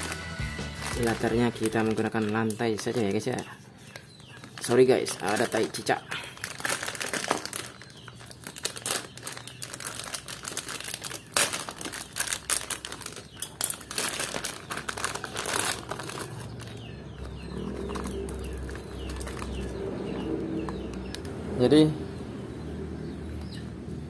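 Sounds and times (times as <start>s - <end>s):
foil packaging crinkling and tearing: 0.0s - 16.9s, 17.6s - 19.8s.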